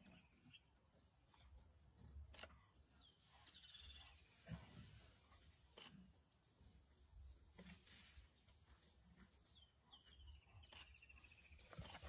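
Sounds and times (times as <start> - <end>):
faint bush ambience: 0.0 - 12.0.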